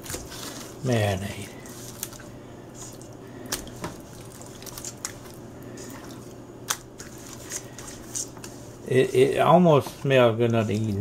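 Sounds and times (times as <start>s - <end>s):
wet squishing of raw chicken: 0.0s - 8.0s
steady low hum: 0.0s - 11.0s.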